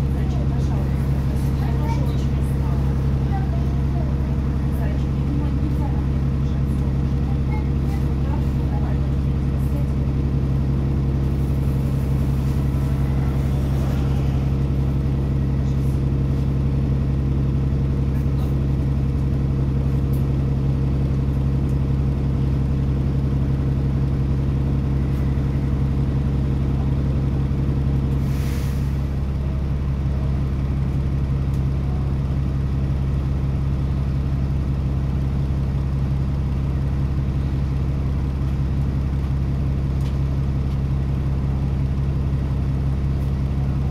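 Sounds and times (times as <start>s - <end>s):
bus engine droning: 0.0s - 43.9s.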